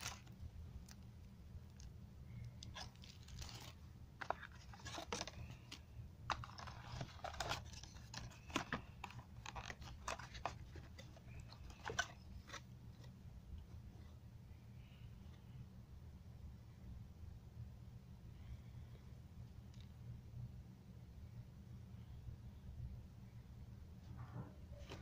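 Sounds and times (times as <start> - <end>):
plastic wrap crinkling: 0.0 - 1.0, 1.7 - 13.1
low steady hum: 0.0 - 25.0.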